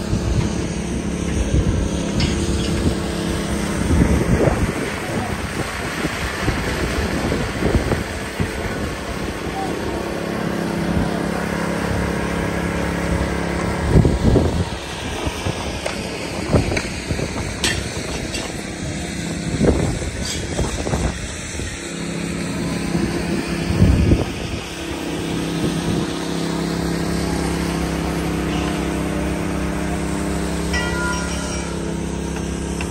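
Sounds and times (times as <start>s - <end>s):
wind buffeting microphone: 0.0s - 9.4s, 13.7s - 21.9s, 22.8s - 26.2s
small petrol engines droning: 0.0s - 32.9s.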